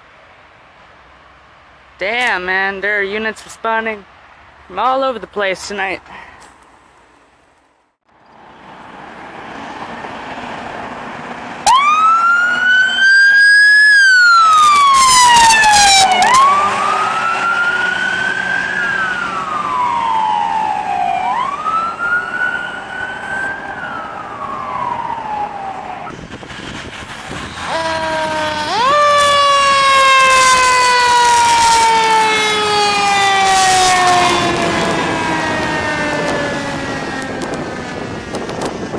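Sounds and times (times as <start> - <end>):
traffic noise: 0.0 - 38.9
ambulance siren wailing: 11.6 - 26.1, 27.5 - 38.6
loud horn blast: 27.6 - 37.2.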